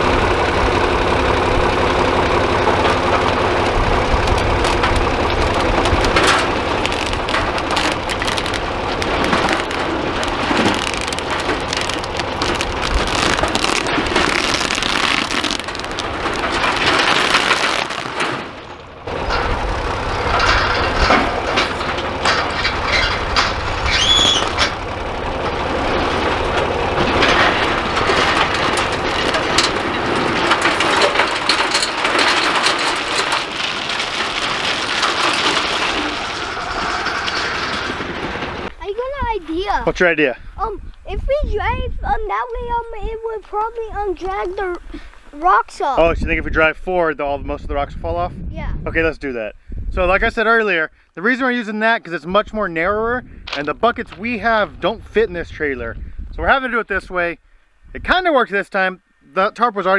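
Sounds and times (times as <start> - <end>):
tractor engine running: 0.0 - 46.5, 52.3 - 58.1
rocks clattering: 2.2 - 39.8, 53.4 - 55.2.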